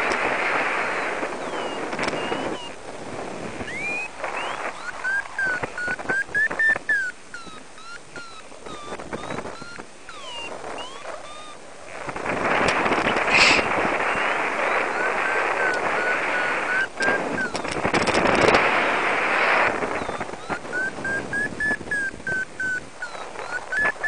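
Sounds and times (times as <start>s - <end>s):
wind rushing over microphone: 0.0s - 24.0s
variometer short high beeps: 1.4s - 2.8s, 3.6s - 11.6s, 14.7s - 18.2s, 20.0s - 24.0s.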